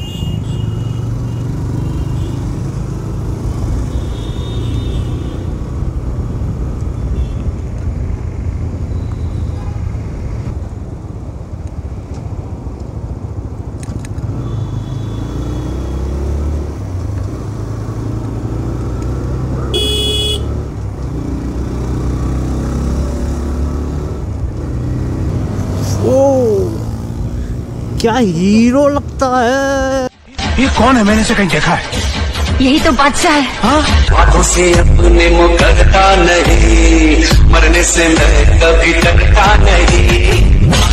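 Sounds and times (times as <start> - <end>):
wind and road noise: 0.0 - 40.9.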